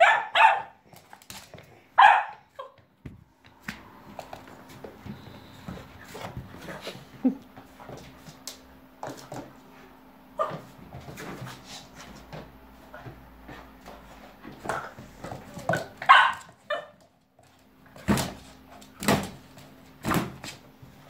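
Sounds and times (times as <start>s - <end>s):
puppy barking and yipping: 0.0s - 0.8s, 2.0s - 2.8s, 16.0s - 17.0s.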